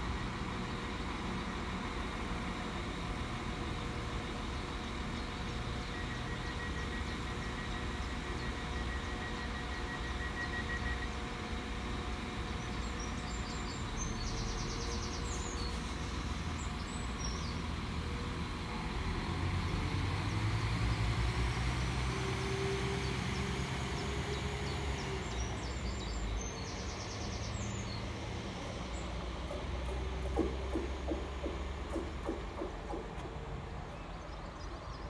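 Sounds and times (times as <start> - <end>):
diesel train engines rumbling: 0.0 - 35.0
birds chirping: 12.2 - 17.9, 23.0 - 35.0.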